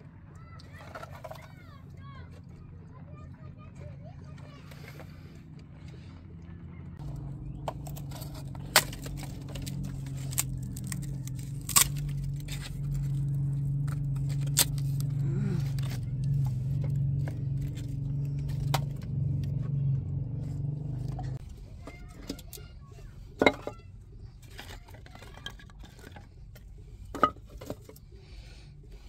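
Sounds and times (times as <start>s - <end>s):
wooden sticks clattering: 0.6s - 1.7s, 7.0s - 19.7s, 20.6s - 28.1s
steady low hum: 4.0s - 21.8s.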